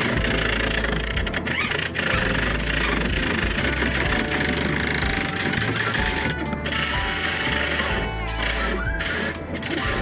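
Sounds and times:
lathe motor running: 0:00.0 - 0:07.9
turning tool cutting wood: 0:00.0 - 0:10.0.

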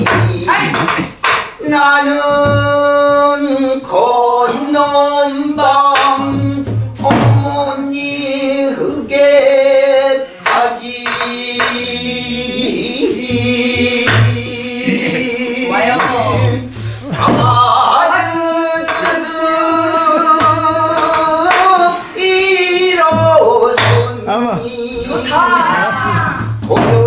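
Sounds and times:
barrel drum beating: 0:00.0 - 0:03.4, 0:05.4 - 0:08.4, 0:10.4 - 0:24.3, 0:26.0 - 0:27.0.

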